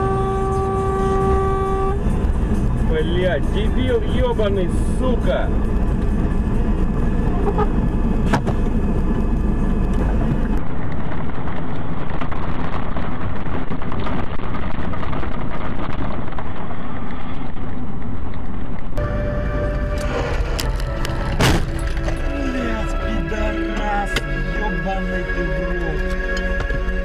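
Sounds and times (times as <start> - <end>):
car engine and road rumble: 0.0 - 27.0
hissy road noise: 19.0 - 24.5.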